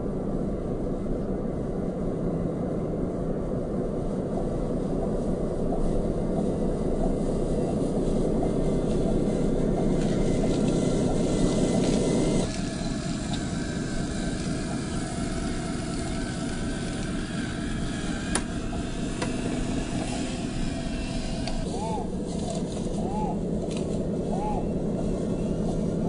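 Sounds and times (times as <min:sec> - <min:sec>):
toy truck electric motor whine: 0:09.2 - 0:22.5.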